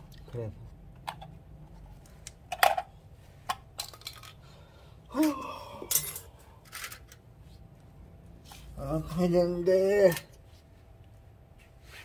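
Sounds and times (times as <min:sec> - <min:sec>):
metal parts clinking on metal tray: 0:05.9 - 0:07.2.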